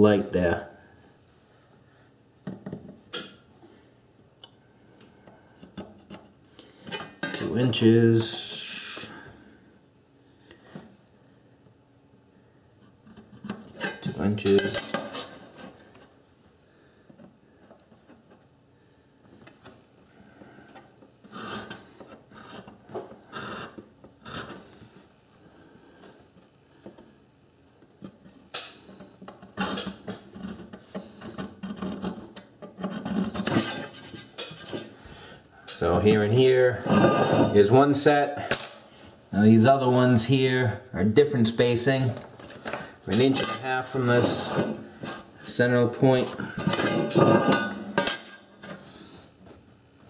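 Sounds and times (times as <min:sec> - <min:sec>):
scriber scratching metal: 0:21.2 - 0:24.7, 0:29.6 - 0:35.0.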